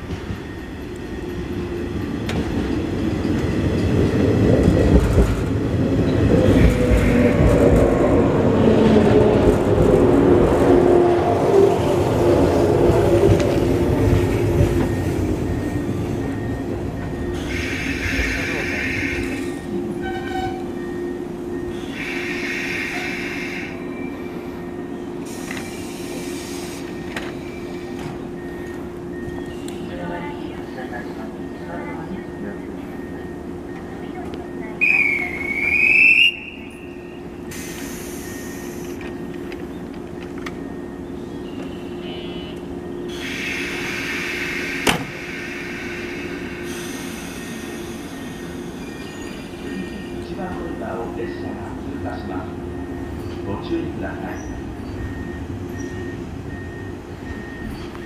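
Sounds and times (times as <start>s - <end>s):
electric train hum: 0.0s - 58.0s
air brake hiss: 37.5s - 39.0s, 43.1s - 48.0s
train brake squeal: 43.1s - 50.2s.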